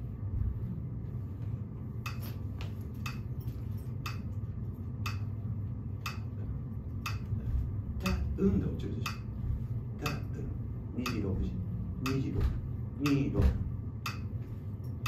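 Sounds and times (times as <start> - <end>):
low room hum: 0.0 - 15.0
metronome clicking: 5.0 - 5.2, 6.0 - 6.3, 7.0 - 7.2, 9.0 - 9.2, 11.0 - 11.3, 13.0 - 13.3, 14.0 - 14.3.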